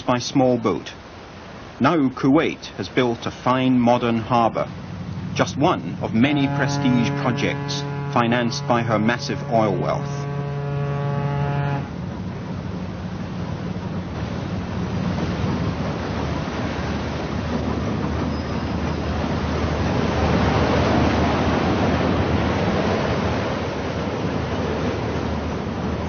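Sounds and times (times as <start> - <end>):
low ship engine hum: 0.0 - 26.0
rushing sea water: 0.0 - 26.0
wind: 0.0 - 26.0.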